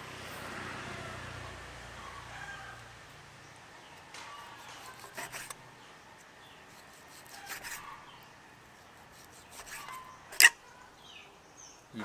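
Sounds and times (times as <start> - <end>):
knife slicing on wooden board: 4.4 - 5.6, 6.7 - 7.9, 9.1 - 10.6.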